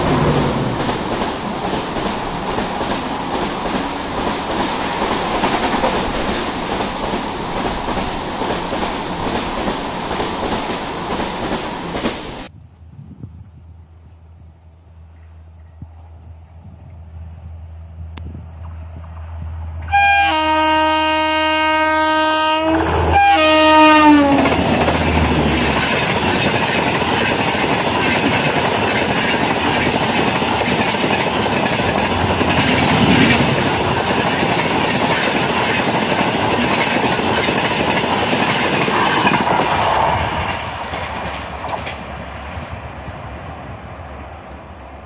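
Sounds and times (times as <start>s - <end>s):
train wheels clattering on rails: 0.0s - 12.5s, 22.8s - 43.2s
locomotive air horn blasts: 19.8s - 24.6s.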